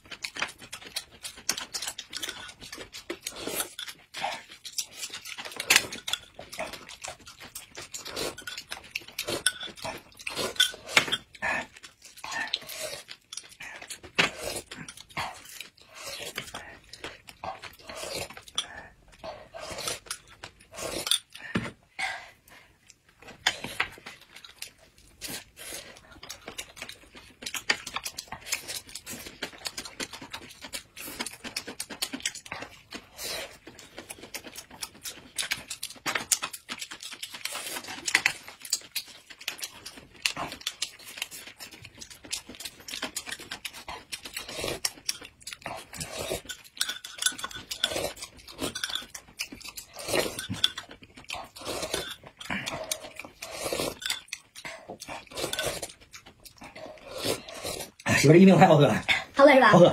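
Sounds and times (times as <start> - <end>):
spoons clinking against glass cups: 46.5 - 47.9, 48.7 - 49.2.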